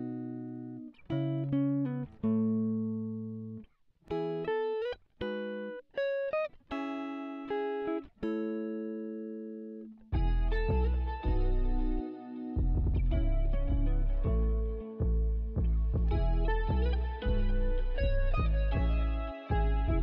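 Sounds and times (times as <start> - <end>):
plucked guitar melody: 0.0 - 20.0
fuller music with deep bass: 10.2 - 20.0.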